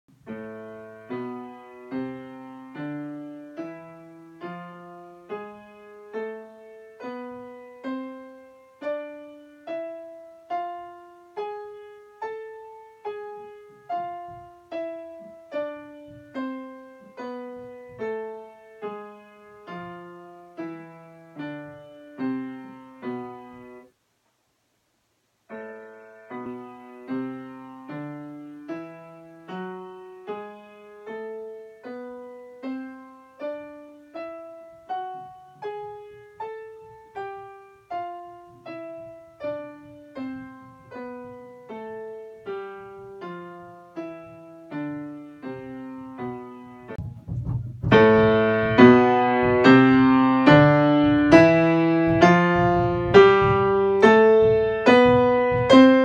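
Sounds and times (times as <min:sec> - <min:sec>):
piano scale: 0:00.1 - 0:23.9, 0:25.5 - 0:56.0.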